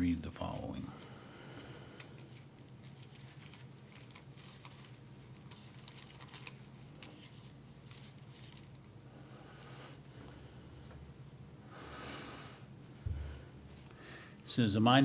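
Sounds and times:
steady low hum: 0.0 - 15.0
pages being leafed through: 2.0 - 8.9.

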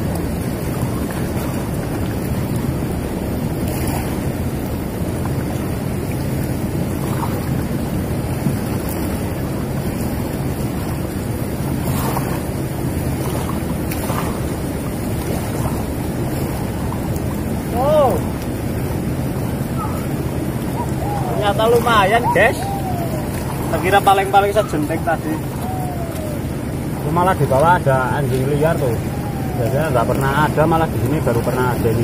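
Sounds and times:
river rushing: 0.0 - 32.0
short rising and falling call: 19.8 - 27.4, 28.2 - 30.7.

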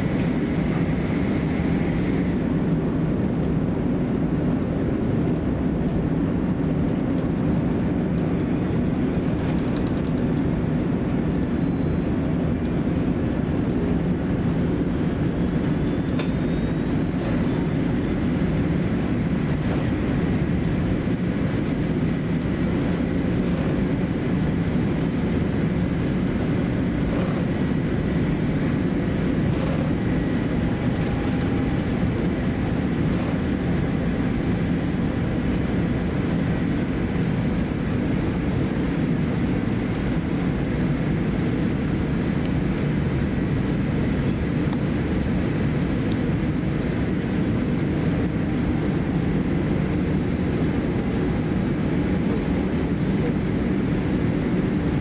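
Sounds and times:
aircraft cabin engine rumble: 0.0 - 55.0
faint high whines: 11.5 - 24.2, 25.0 - 37.8.

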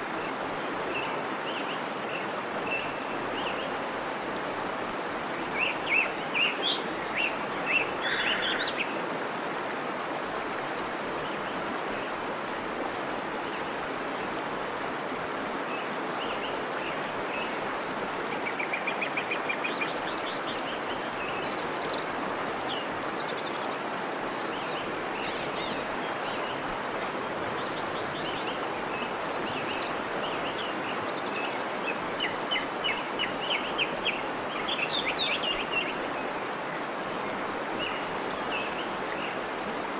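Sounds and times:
songbirds chirping: 0.0 - 39.9
waterfall rushing: 0.0 - 39.9.

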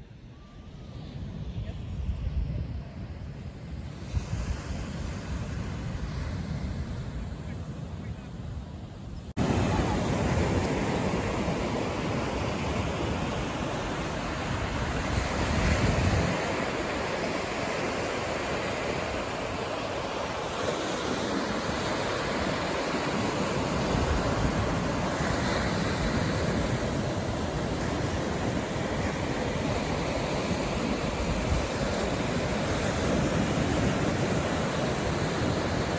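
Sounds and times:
wind buffeting microphone: 0.7 - 35.9
ocean surf breaking: 9.4 - 35.9.

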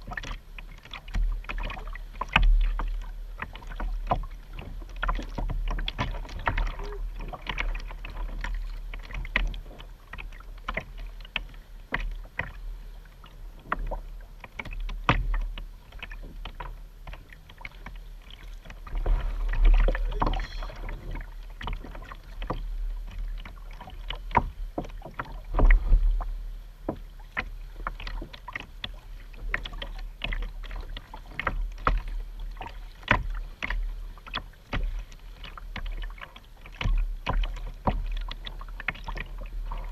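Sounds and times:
paddle pulling through water: 0.0 - 39.9
water drips on plastic hull: 0.0 - 39.9
low rumbles: 18.8 - 21.8.

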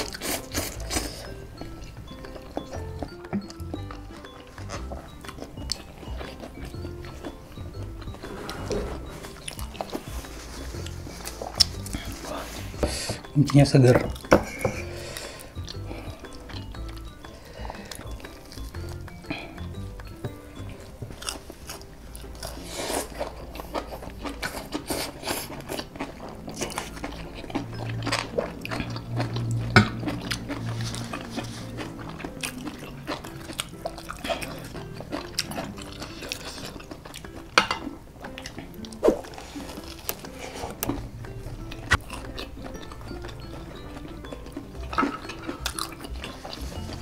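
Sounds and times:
background music: 0.0 - 47.0
crunchy bites and chewing: 20.7 - 37.4, 41.7 - 47.0.

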